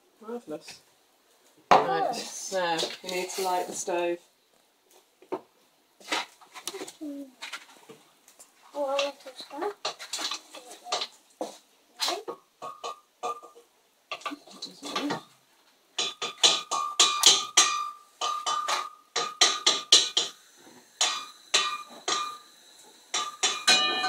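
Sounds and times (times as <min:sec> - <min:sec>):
metallic clicks of gas hob igniter: 0:16.0 - 0:20.4, 0:21.0 - 0:24.0.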